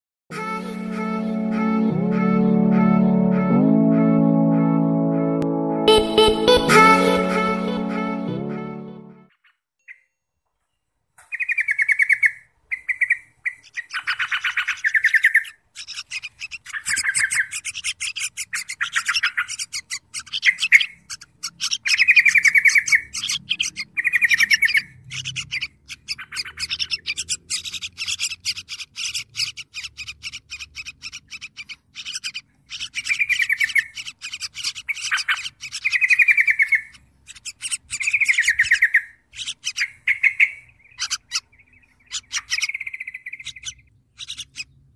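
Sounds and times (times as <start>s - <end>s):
short buzzy bird notes: 0.3s - 9.3s
birds chattering: 11.2s - 44.9s.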